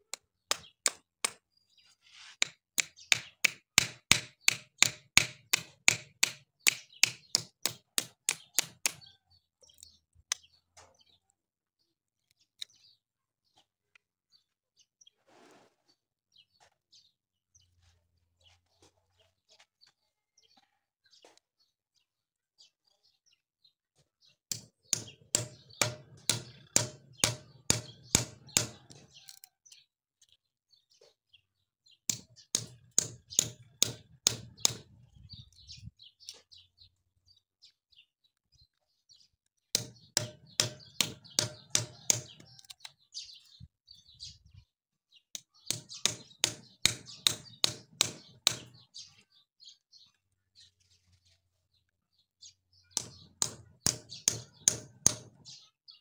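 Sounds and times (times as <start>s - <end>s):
hammer knocking on knife blade: 24.5s - 29.0s, 39.8s - 42.5s, 45.7s - 48.7s.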